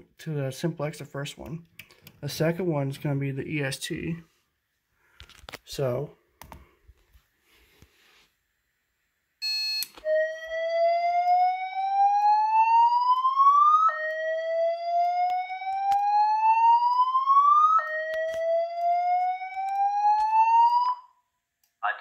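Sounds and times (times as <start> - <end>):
fire alarm short beep: 9.4 - 10.2
fire alarm whoop tone: 9.4 - 21.2.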